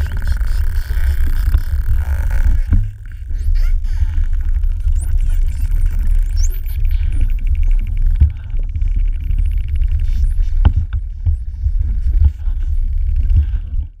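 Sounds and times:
dolphin echolocation clicks: 0:00.0 - 0:11.0
low underwater rumble: 0:00.0 - 0:14.0.

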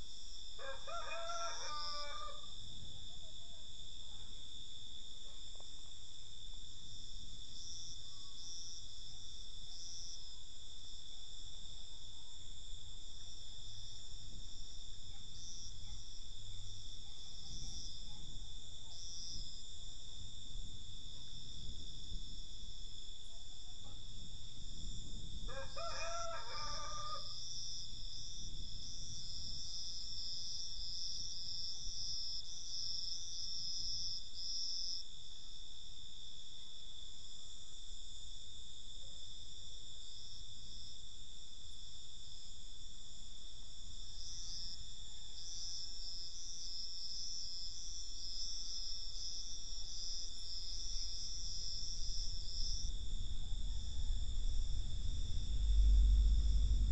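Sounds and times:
crickets trilling: 0:00.0 - 0:56.9
rooster crowing: 0:00.6 - 0:02.5, 0:25.5 - 0:27.4.

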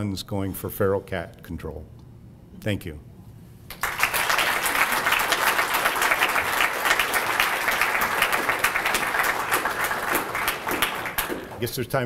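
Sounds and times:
audience applauding: 0:03.7 - 0:11.7.

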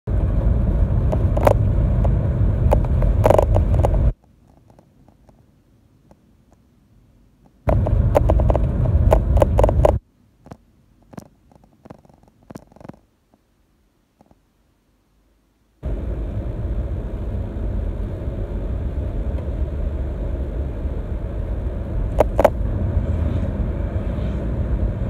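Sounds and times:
car rumble from inside cabin: 0:00.1 - 0:04.2, 0:07.7 - 0:10.0, 0:15.8 - 0:25.0
knocks and rattles: 0:07.7 - 0:13.0.

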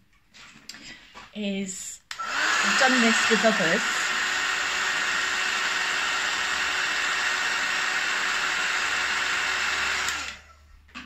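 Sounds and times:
heat gun blowing hiss: 0:02.1 - 0:05.4.

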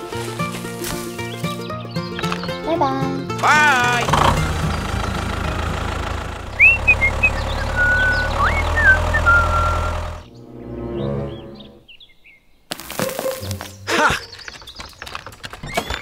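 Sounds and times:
tractor engine running: 0:00.0 - 0:10.3
high chirps: 0:06.3 - 0:10.3.

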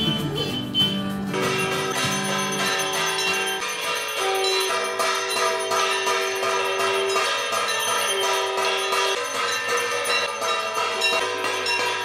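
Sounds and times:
held melody notes: 0:00.0 - 0:07.4
jingling bells: 0:00.0 - 0:12.0.

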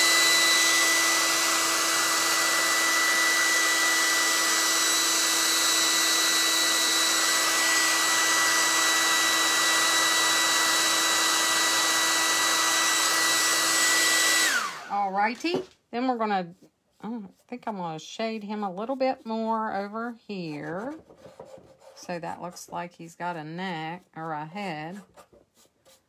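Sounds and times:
hair dryer running: 0:00.0 - 0:15.6.

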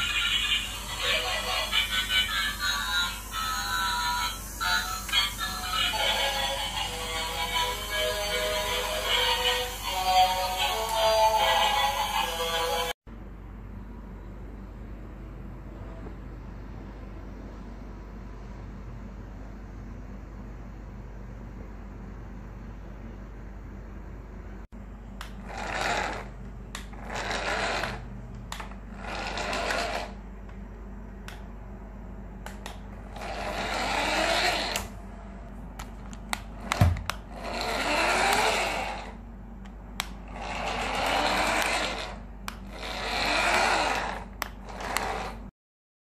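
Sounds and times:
toy car motor whirring: 0:00.0 - 0:12.9, 0:25.4 - 0:30.2, 0:33.1 - 0:34.9, 0:37.3 - 0:39.2, 0:40.2 - 0:45.5.

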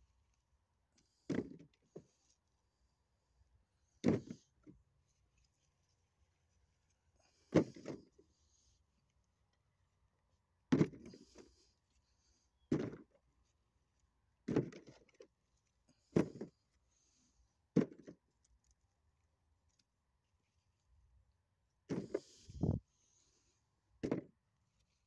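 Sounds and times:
apples dropping with dull thuds: 0:01.2 - 0:01.7, 0:04.0 - 0:04.4, 0:07.4 - 0:08.1, 0:10.7 - 0:11.4, 0:12.7 - 0:13.1, 0:14.4 - 0:15.0, 0:16.0 - 0:16.6, 0:17.7 - 0:18.1, 0:21.9 - 0:22.8, 0:24.0 - 0:24.4.

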